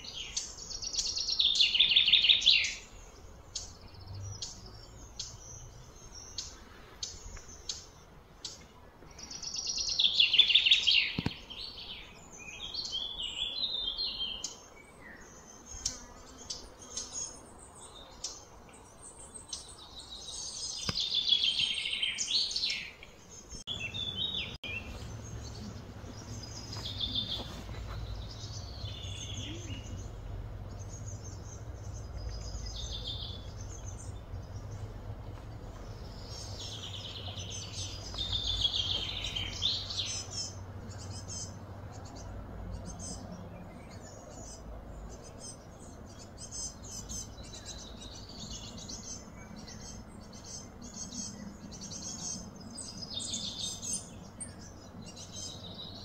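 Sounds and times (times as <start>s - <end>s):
birds singing: 0.0s - 56.0s
low background hum: 23.1s - 56.0s.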